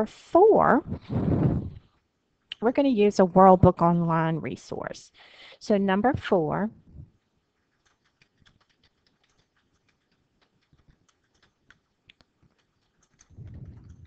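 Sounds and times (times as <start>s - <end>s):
faint keyboard typing: 7.5s - 14.0s.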